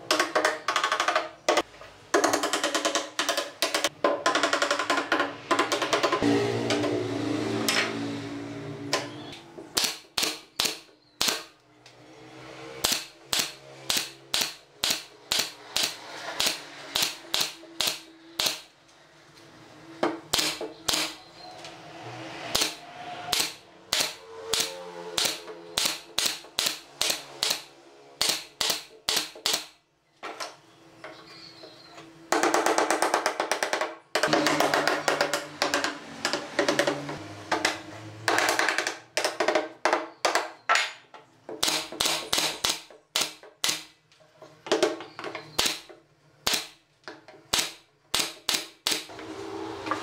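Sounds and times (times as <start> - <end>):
nail gun firing: 9.7 - 11.5, 12.8 - 18.7, 20.3 - 21.2, 22.5 - 29.8, 41.6 - 44.0, 45.5 - 46.8, 47.5 - 49.1.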